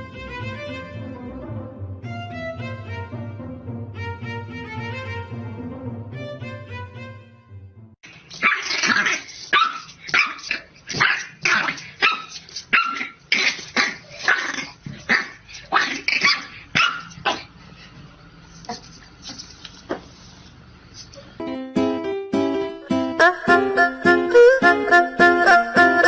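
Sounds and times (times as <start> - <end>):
background music: 0.0 - 8.0, 21.4 - 26.0
puppy barking: 8.4 - 17.5.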